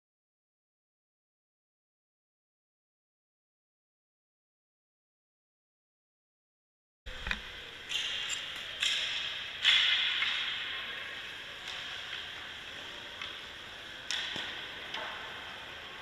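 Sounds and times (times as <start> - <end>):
hissing rink echo: 7.1 - 16.0
skates and sticks knocking on ice: 11.6 - 15.5.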